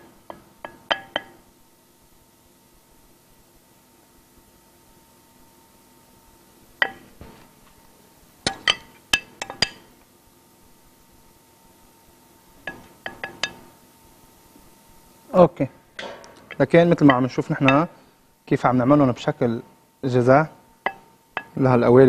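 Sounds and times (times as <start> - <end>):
metal rings clinking on a plate: 0.3 - 1.4, 8.5 - 9.9, 12.7 - 13.7, 16.0 - 17.9, 20.8 - 21.6.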